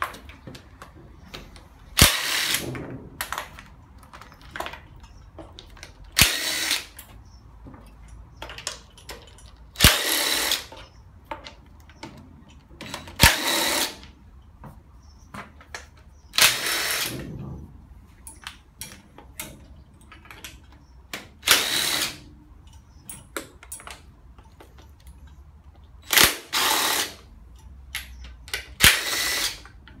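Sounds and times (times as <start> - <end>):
power driver spinning bolts: 2.0 - 7.2, 11.8 - 14.1, 18.3 - 24.6, 26.0 - 30.0
clinks of socket and bolts: 7.8 - 13.2, 18.2 - 21.2, 22.6 - 25.4.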